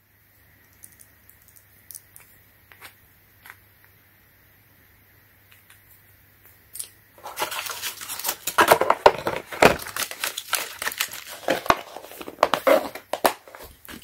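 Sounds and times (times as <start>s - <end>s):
paper and plastic rustling: 7.2s - 14.0s.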